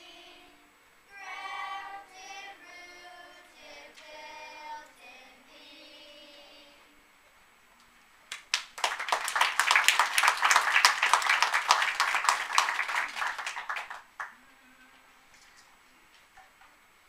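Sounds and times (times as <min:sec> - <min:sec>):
audience applauding: 0:08.3 - 0:14.4.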